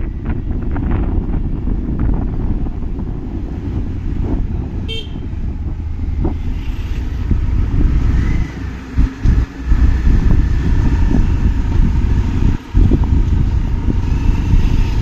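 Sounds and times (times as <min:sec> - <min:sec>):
wind rumbling on microphone: 0:00.0 - 0:15.0
motorbike engine: 0:02.0 - 0:15.0
horn toot: 0:04.9 - 0:05.3.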